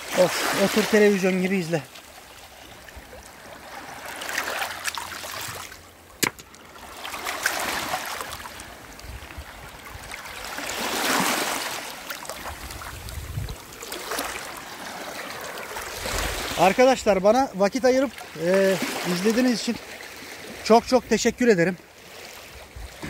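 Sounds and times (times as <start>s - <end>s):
small waves washing over pebbles: 0.0s - 16.8s.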